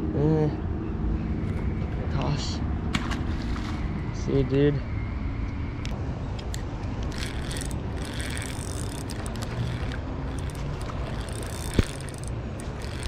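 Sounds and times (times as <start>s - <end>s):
fishing reel clicking: 7.0s - 13.0s
sharp reel click: 7.0s - 13.0s.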